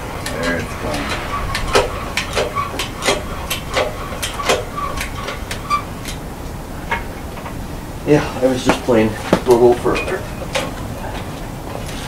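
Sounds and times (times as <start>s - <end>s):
engine hoist clicking and squeaking: 2.3s - 6.2s, 9.8s - 10.8s.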